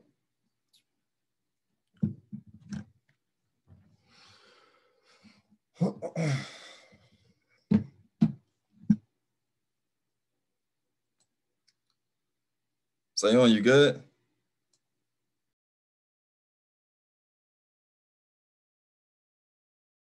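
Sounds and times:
man sighing: 4.3s - 7.2s.

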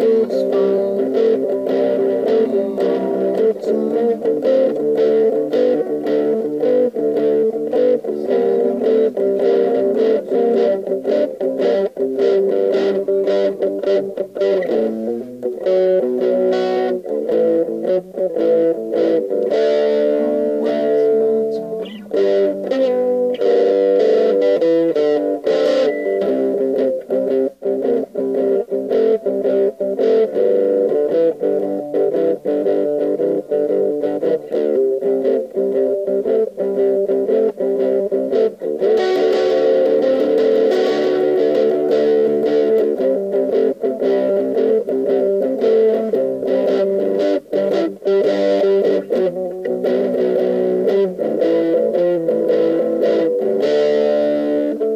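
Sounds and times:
overdriven electric guitar riffs: 0.0s - 54.9s.

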